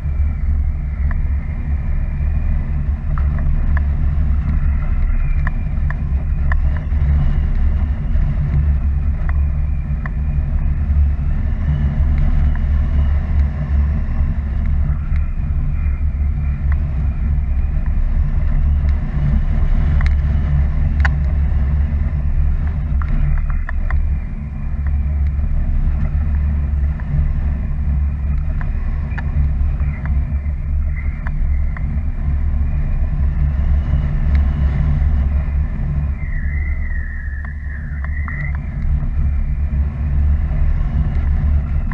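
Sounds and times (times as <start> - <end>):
wind buffeting microphone: 0.0 - 41.9
faint wavering high whistle: 35.2 - 39.6.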